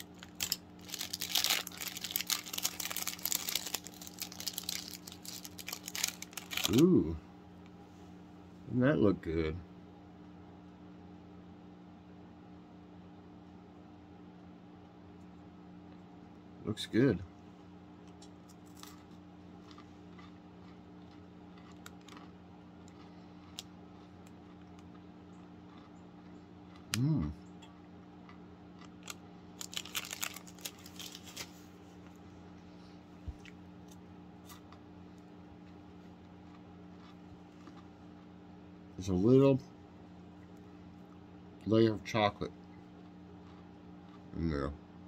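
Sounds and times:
plastic wrapper crinkling: 0:00.0 - 0:06.8, 0:29.0 - 0:31.7
faint crunching of chewing: 0:00.0 - 0:08.2, 0:17.3 - 0:45.0.

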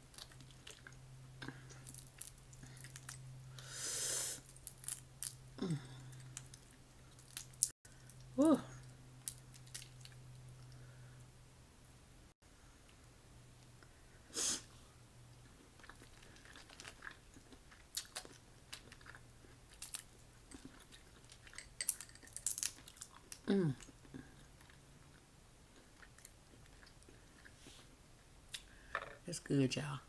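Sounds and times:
chewing: 0:00.1 - 0:03.3, 0:09.2 - 0:10.8, 0:15.3 - 0:27.7.

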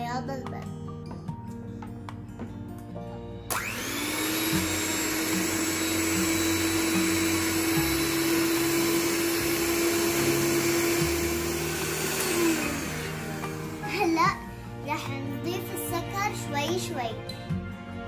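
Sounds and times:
hand mixer motor whine: 0:03.5 - 0:14.6.

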